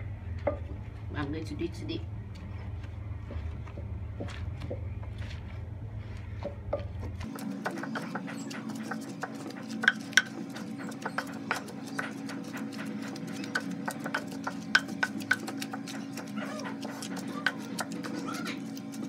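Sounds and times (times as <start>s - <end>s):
steady low hum: 0.0s - 19.0s
wooden pestle pounding paste: 7.2s - 19.0s.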